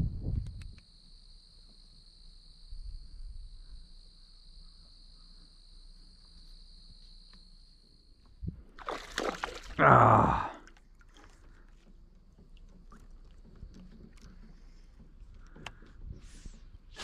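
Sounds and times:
faint clicks: 12.6 - 16.0.

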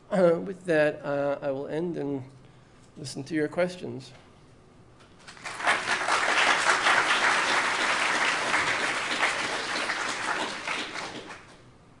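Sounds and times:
audience applauding: 5.3 - 11.6.

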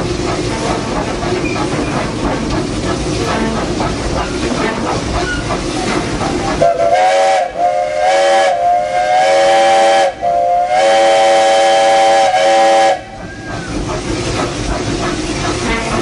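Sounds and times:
train cars running and rattling: 0.0 - 16.0
steam locomotive whistle: 6.6 - 13.7.

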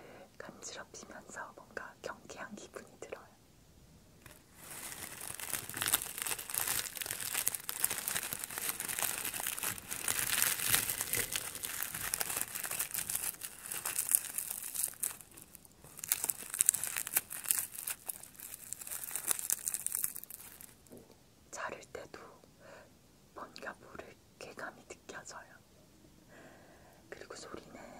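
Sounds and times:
scissors cutting crinkly sheet: 4.7 - 20.6.

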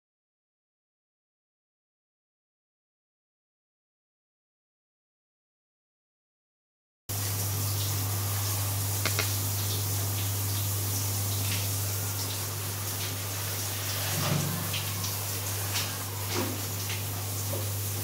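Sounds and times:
water spraying: 7.1 - 18.0.

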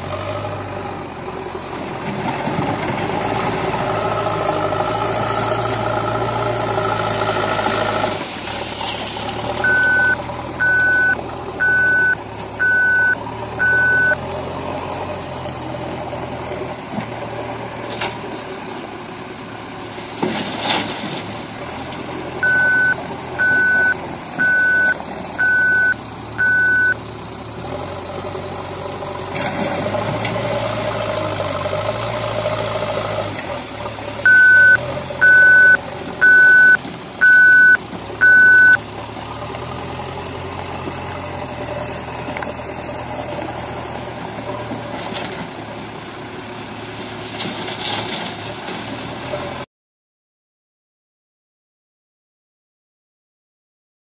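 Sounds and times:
diesel engine running: 0.0 - 49.6
reversing alarm beeps: 9.6 - 14.2, 22.4 - 27.0, 34.3 - 38.8.

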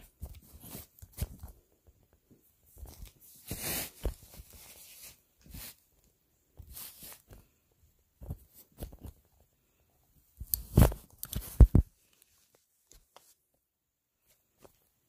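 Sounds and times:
handling rustles and clicks: 0.0 - 7.5, 10.4 - 13.4
scraping and rustling: 2.7 - 5.9.

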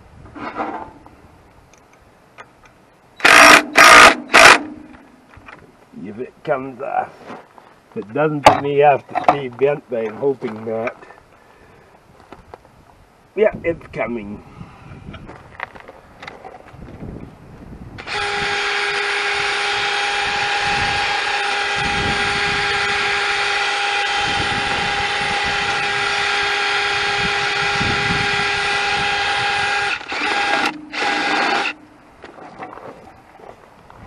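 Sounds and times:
power tool running: 3.2 - 4.8, 18.0 - 31.8.

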